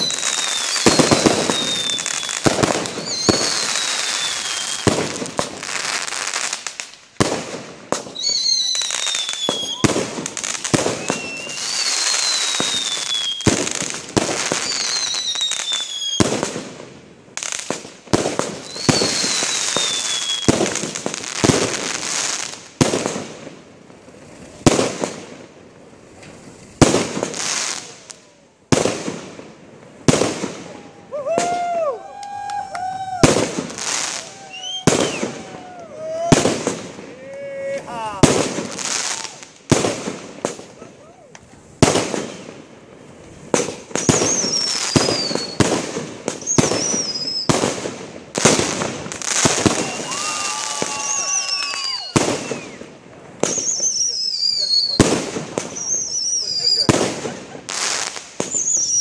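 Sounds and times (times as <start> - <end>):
falling whistles: 0.0 - 4.9, 8.2 - 10.0, 10.8 - 13.7, 14.6 - 16.2, 18.6 - 20.6, 33.8 - 36.2, 44.0 - 45.7, 46.4 - 47.5, 49.4 - 55.0, 55.8 - 56.9, 58.5 - 59.0
fireworks bangs: 0.0 - 59.0
fireworks crackling: 0.0 - 59.0
fireworks launches and bursts: 0.0 - 59.0.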